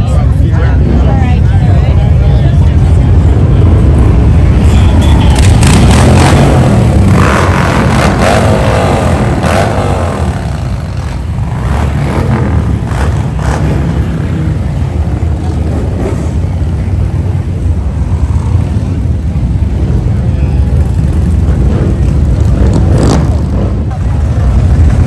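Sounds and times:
motorcycle engines rumbling: 0.0 - 25.0
motorcycle revving: 0.0 - 25.0.

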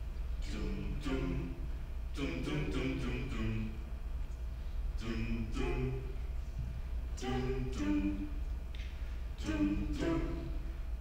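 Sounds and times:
a cappella group singing: 0.4 - 3.8, 5.0 - 6.2, 7.2 - 8.5, 9.4 - 11.0.

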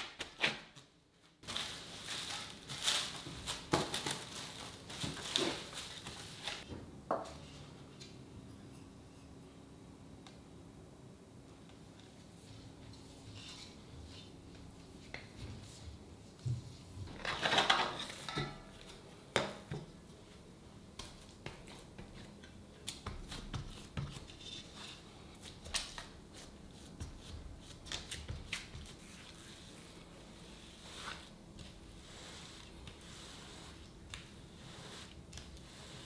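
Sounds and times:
kitchen handling noise: 17.1 - 20.0
utensils knocking on dishes: 17.5 - 18.8.

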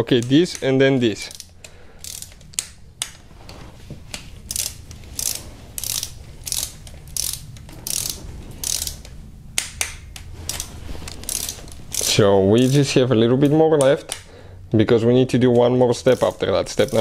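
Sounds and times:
torque wrench ratchet clicking: 1.3 - 2.7, 4.5 - 9.1, 10.5 - 12.9, 16.1 - 17.0.

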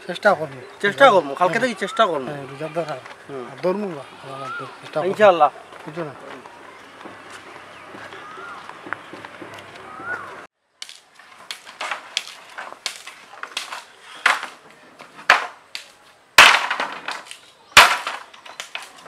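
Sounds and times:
bamboo pole knocks: 15.2 - 15.6, 16.4 - 19.0.

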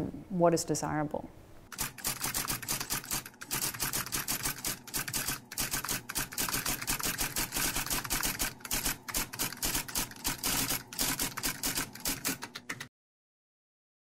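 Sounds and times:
typewriter keys clicking: 1.7 - 12.9.

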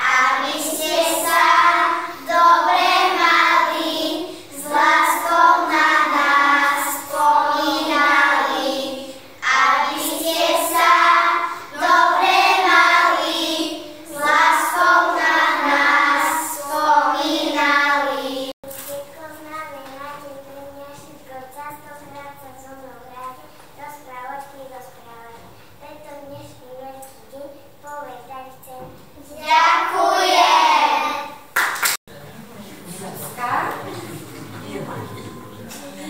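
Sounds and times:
children singing: 0.0 - 18.6.

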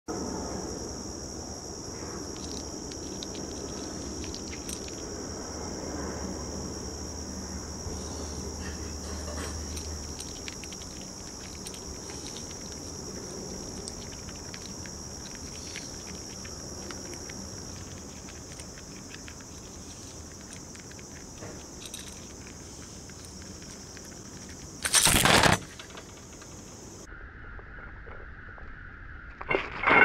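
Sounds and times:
high-pitched insect drone: 0.1 - 27.4
chipmunk cracking seeds: 2.1 - 5.5, 7.9 - 27.0.

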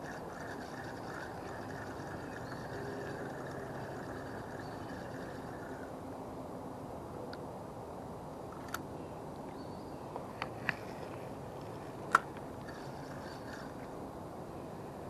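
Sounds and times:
fishing rod and reel clicks: 0.0 - 5.9, 12.1 - 14.0
steady outdoor hiss: 0.0 - 15.0.

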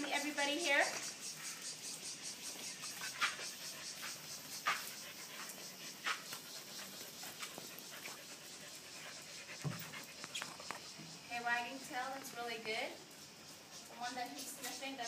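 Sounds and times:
dogs panting: 0.0 - 11.3.

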